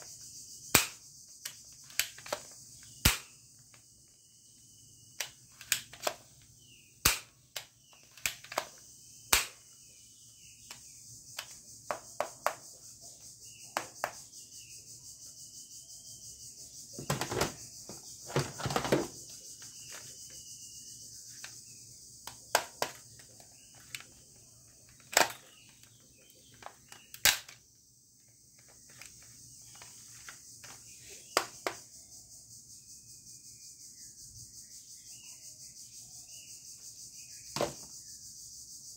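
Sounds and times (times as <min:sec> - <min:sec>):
plastic toy gun clicks: 0:00.7 - 0:03.3, 0:05.2 - 0:06.2, 0:07.0 - 0:09.6, 0:24.9 - 0:25.9, 0:26.6 - 0:27.6
plastic rubbing and rattling: 0:17.0 - 0:20.2, 0:22.5 - 0:27.6.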